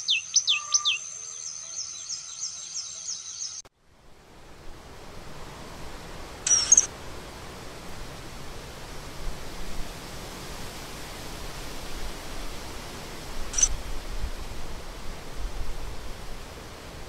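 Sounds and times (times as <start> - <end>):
kingfisher call: 0.0 - 1.9
steady background hiss: 0.0 - 17.0.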